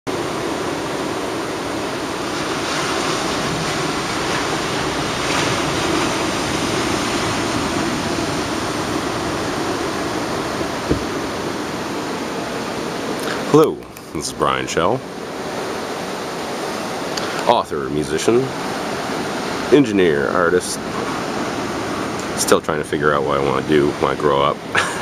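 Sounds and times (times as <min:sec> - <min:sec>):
surf waves breaking: 0:00.1 - 0:25.0
low bump: 0:10.6 - 0:11.8.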